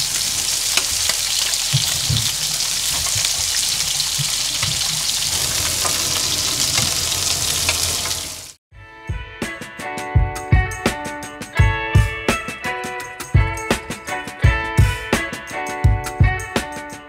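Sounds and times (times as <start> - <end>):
seafood sizzling in oil: 0.0 - 8.6.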